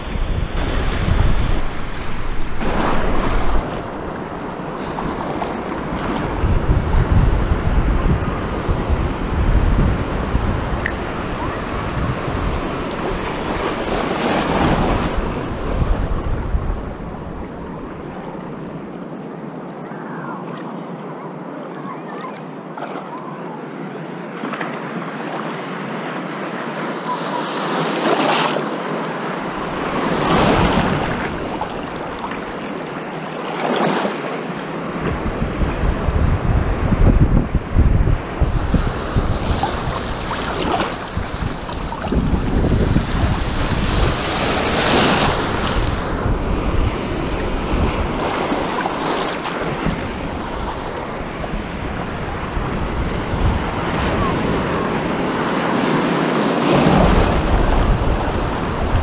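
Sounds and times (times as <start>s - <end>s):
small waves washing: 0.0s - 7.0s, 24.3s - 35.3s, 38.7s - 59.0s
wind rumbling on microphone: 0.0s - 20.4s, 29.4s - 33.0s, 34.6s - 59.0s.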